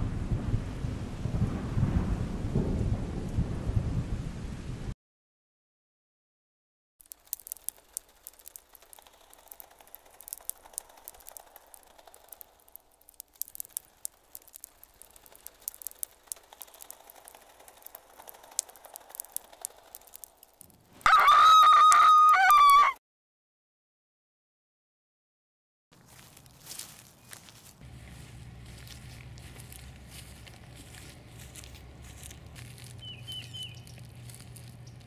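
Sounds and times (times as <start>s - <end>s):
faint crackling and rustling: 7.0s - 21.1s, 26.0s - 35.0s.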